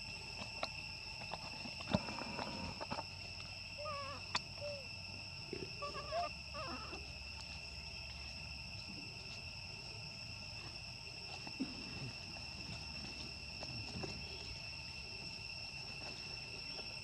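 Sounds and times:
high insect drone: 0.0s - 17.0s
young monkeys squeaking: 3.8s - 4.9s, 5.8s - 7.1s.

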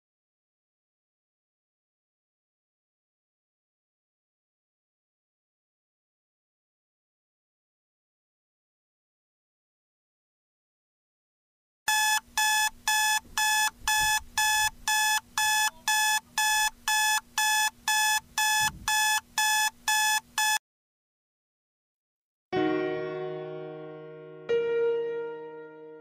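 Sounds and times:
electronic alarm beeping: 11.9s - 20.6s
soft piano notes: 22.6s - 26.0s.

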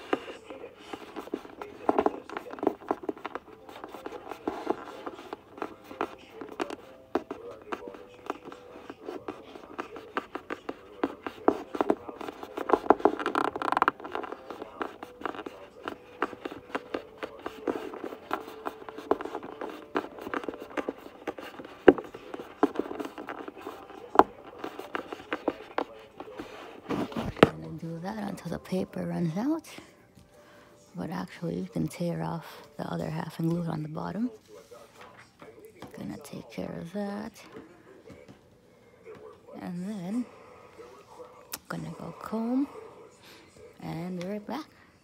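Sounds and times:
paper rustling and scraping: 0.0s - 28.4s.

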